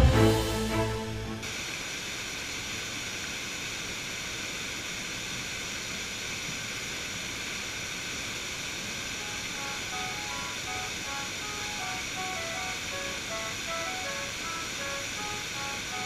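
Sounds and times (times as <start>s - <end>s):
waterfall rushing: 8.0s - 16.0s
faint music: 9.2s - 16.0s.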